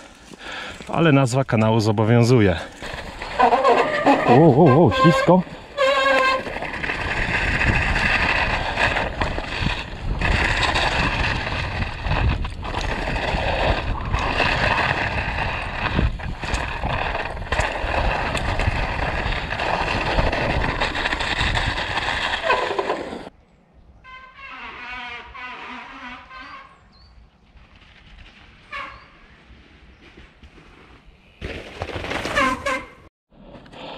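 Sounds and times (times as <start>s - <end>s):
bike tyre noise: 0.0s - 23.4s, 24.1s - 33.9s
wind rushing over microphone: 6.5s - 22.5s.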